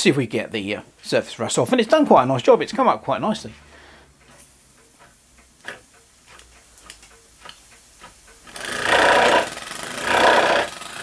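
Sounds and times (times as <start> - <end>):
steam engine chuffing: 3.3 - 11.0.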